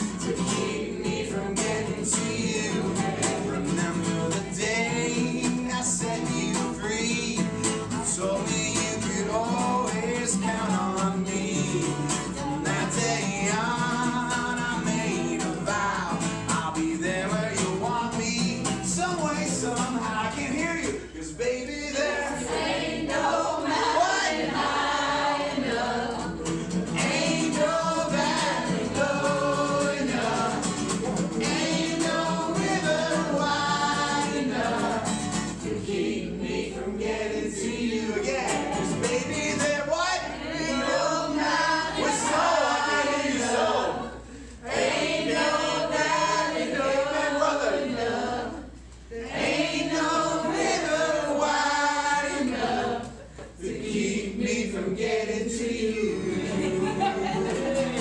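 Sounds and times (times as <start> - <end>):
strummed acoustic guitar: 0.0 - 36.0, 36.6 - 41.0, 56.0 - 58.0
group singing along: 0.0 - 58.0.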